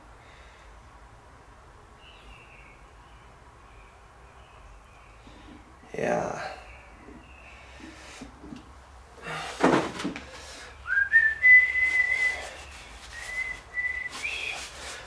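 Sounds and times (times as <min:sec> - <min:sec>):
man whistling: 0:10.8 - 0:14.7.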